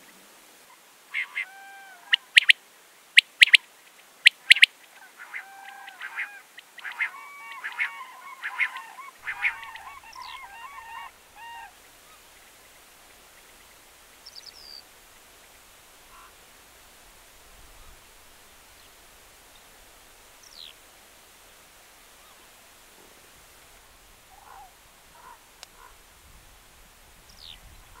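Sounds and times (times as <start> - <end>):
cranes calling: 1.1 - 2.5, 4.5 - 14.8, 16.0 - 16.5, 24.3 - 26.0.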